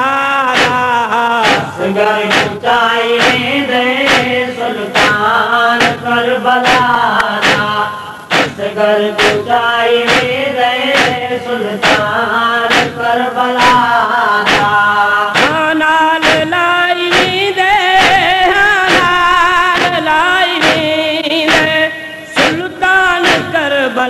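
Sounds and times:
man chanting a lament: 0.0 - 24.0
sharp rhythmic beat: 0.0 - 24.0.

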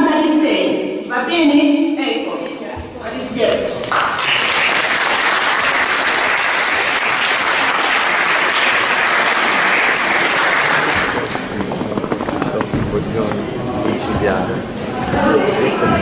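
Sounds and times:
audience applauding: 3.8 - 14.0.

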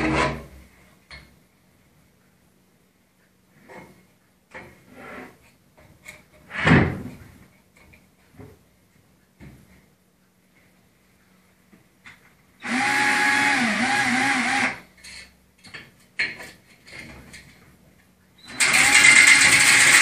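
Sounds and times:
power drill spinning rod in pipe: 18.5 - 20.0.

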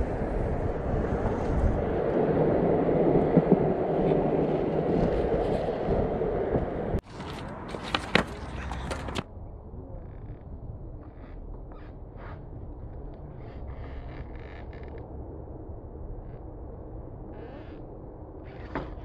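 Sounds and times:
skateboard wheels rolling on concrete: 0.0 - 9.3
skateboard clacks and knocks: 6.5 - 9.3.

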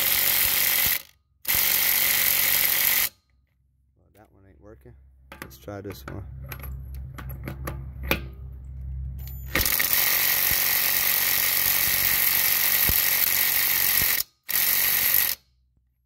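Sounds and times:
impact driver hammering: 9.5 - 15.4.

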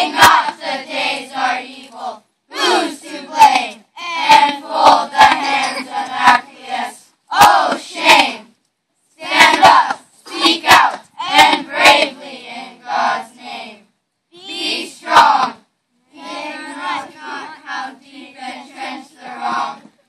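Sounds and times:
children chanting in unison: 0.0 - 8.5, 9.2 - 20.0
sharp percussive hits: 5.2 - 6.4.

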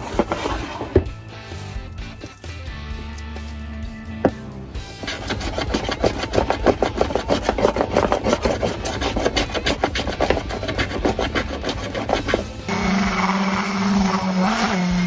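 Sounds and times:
hand plane scraping wood: 0.0 - 1.7, 5.0 - 15.0.

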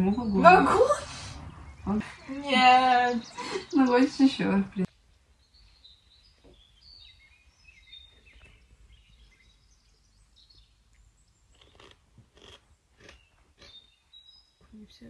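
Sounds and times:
faint high bird chirps: 1.6 - 12.0.

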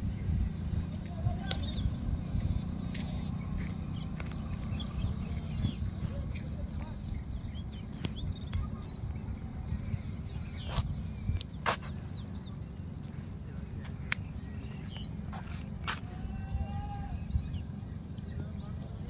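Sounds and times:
low rumble: 0.0 - 11.4
insects buzzing: 0.0 - 19.0.

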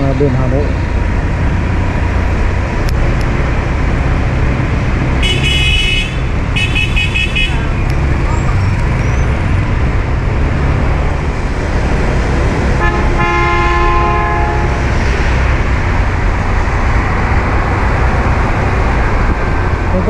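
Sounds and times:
street traffic rumble: 0.0 - 20.0
vehicle horn honk: 5.2 - 7.8, 12.8 - 14.8.

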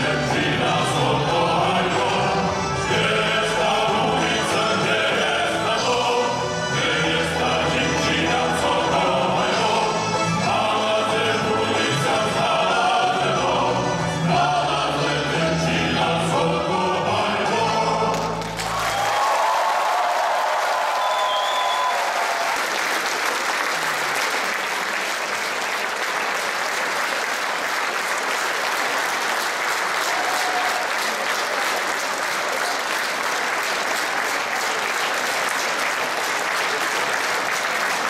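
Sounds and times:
male choir singing: 0.0 - 18.4
audience applauding: 18.1 - 38.0.

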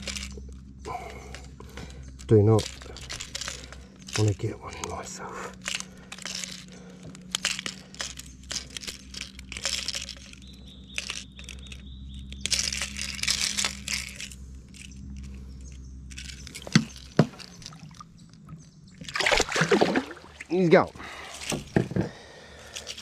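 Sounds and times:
water splashing and sloshing: 16.2 - 22.8.

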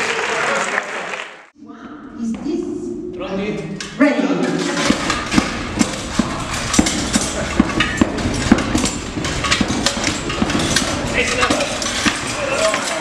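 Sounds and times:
metallic armour clatter: 4.4 - 13.0.

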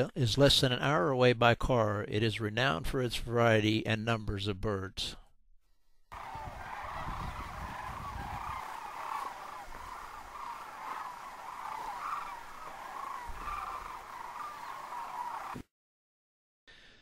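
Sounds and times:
cranes calling: 6.1 - 15.6.

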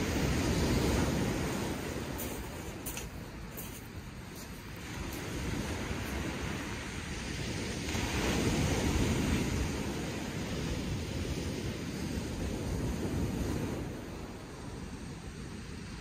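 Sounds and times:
waves breaking on shingle beach: 0.0 - 16.0
wind rumbling on microphone: 0.0 - 16.0.

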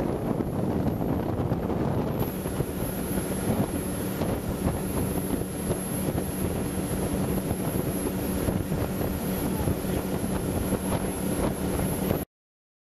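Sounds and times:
motorboat engine drone: 0.0 - 12.3
rushing wind and water: 0.0 - 12.3.

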